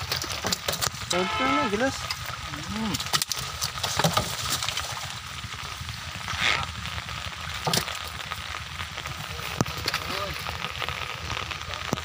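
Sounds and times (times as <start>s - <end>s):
crackling hiss: 0.0s - 12.0s
water pattering and dripping: 0.0s - 12.0s
water splash: 2.9s - 7.0s.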